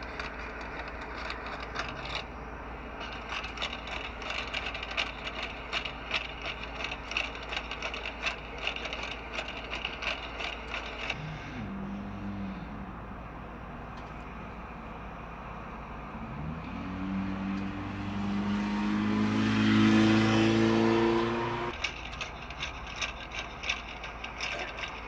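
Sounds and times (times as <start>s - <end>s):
robot dog mechanical clicks: 3.1s - 11.2s.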